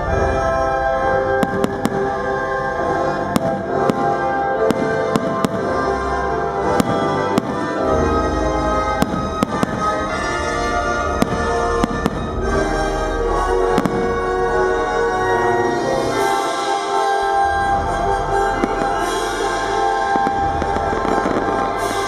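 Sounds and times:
loud music with sustained chords: 0.0 - 22.0
firework shells bursting: 1.4 - 2.2, 18.4 - 22.0.

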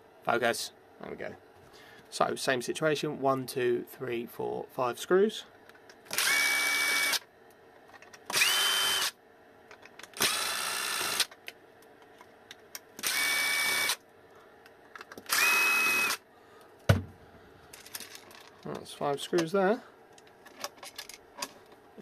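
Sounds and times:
electric screwdriver whining: 6.1 - 7.2, 8.3 - 9.1, 10.2 - 11.3, 13.0 - 14.0, 15.2 - 16.2.

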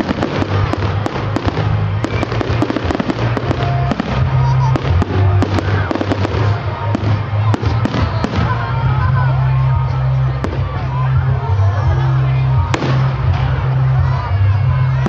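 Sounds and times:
fireworks bangs and crackles: 0.0 - 9.5, 10.2 - 11.2, 12.6 - 15.0
music with heavy bass: 0.0 - 15.0.

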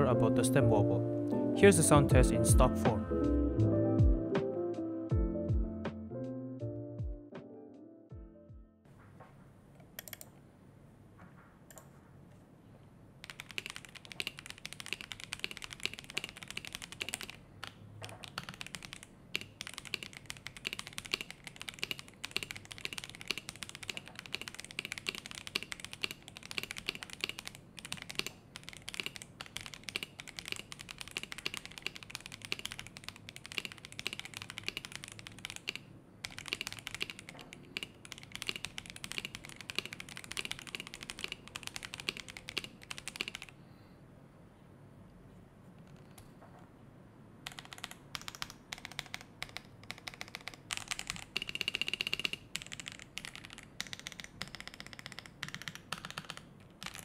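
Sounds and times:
typing on mechanical keyboard: 13.2 - 43.6, 47.4 - 57.0.

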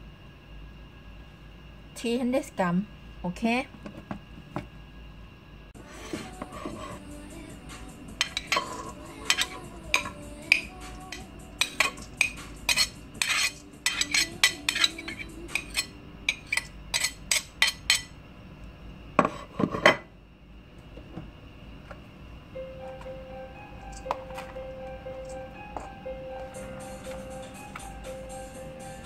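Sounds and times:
metal spoon clinking on plate: 8.2 - 18.1.

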